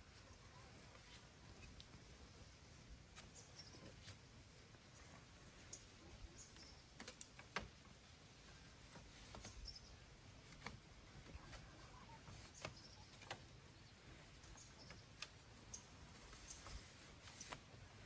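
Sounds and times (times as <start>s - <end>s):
bamboo strips clicking: 7.0s - 7.9s, 10.4s - 10.9s, 14.9s - 15.8s.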